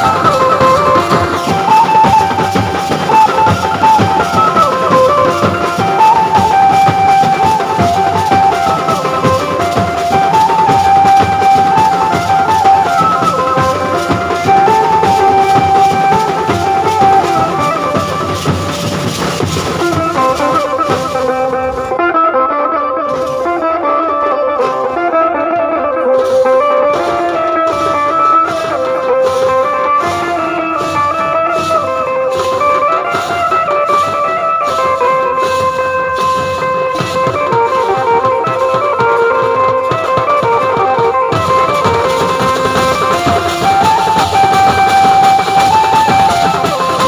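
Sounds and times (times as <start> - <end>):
barrel drums beaten with sticks: 0.0 - 21.8, 26.2 - 47.0
amplified melody line: 0.0 - 47.0.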